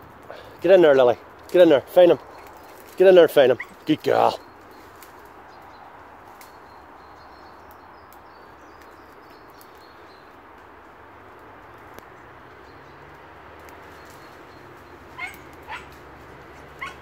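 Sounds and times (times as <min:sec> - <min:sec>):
footsteps on dry twigs and leaves: 0:01.2 - 0:07.3
twig snapping: 0:04.9 - 0:05.4, 0:13.6 - 0:14.2.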